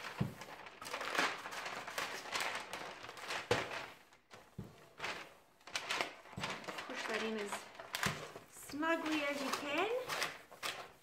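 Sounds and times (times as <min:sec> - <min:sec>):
paper crinkling and rustling: 0:00.0 - 0:11.0.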